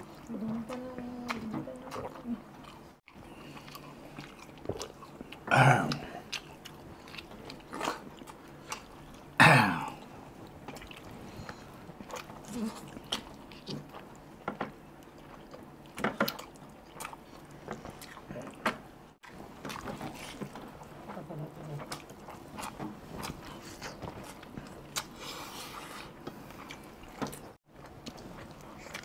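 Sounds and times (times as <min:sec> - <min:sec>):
chewing and smacking: 0:00.0 - 0:29.0
throaty sounds: 0:04.7 - 0:08.7, 0:09.4 - 0:13.9.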